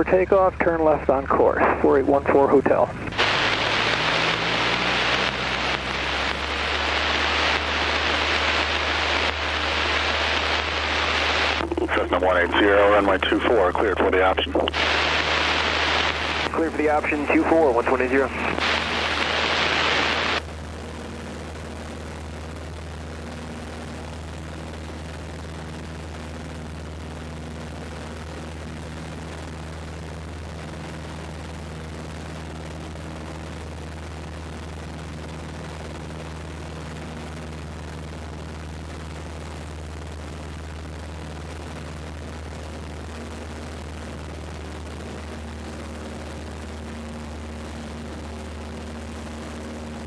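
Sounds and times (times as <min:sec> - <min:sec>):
radio static burst: 0:00.0 - 0:20.4
aircraft engine and propeller drone: 0:00.0 - 0:50.0.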